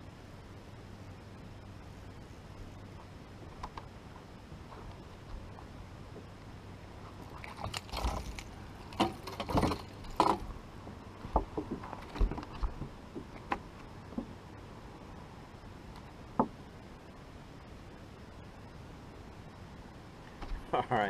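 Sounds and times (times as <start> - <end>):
fish splashing at water surface: 7.2 - 10.4.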